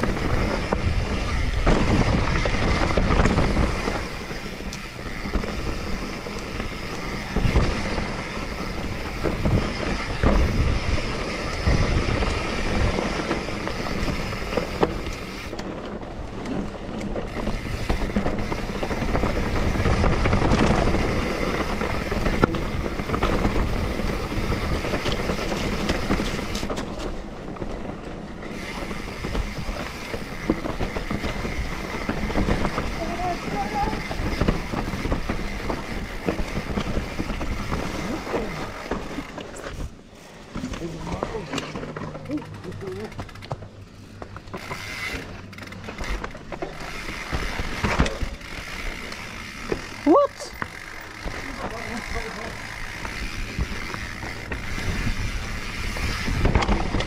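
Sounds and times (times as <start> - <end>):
freehub ticking: 0.0 - 15.7, 41.6 - 57.0
bike rattling: 0.0 - 57.0
bike tyres rumbling over dirt: 0.0 - 57.0
wheels knocking on rocks: 0.0 - 57.0.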